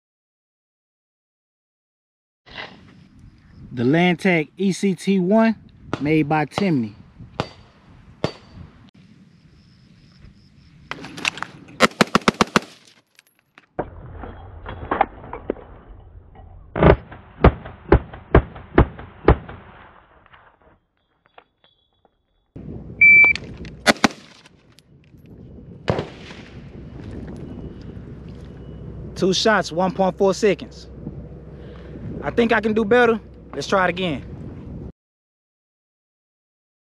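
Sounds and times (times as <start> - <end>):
rifle gunshots: 11.8 - 12.9, 23.8 - 24.4, 25.9 - 26.5
shot timer beep: 23.0 - 23.4.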